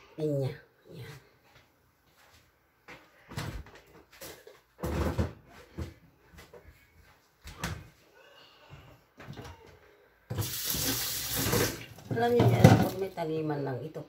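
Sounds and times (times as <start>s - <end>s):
water running into metal sink: 10.3s - 13.2s.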